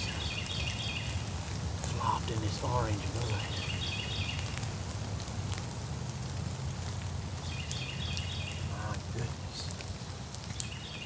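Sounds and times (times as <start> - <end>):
small bird singing: 0.0 - 1.3, 2.0 - 4.6, 7.4 - 9.7, 10.5 - 11.0
rain falling in woodland: 0.0 - 11.0.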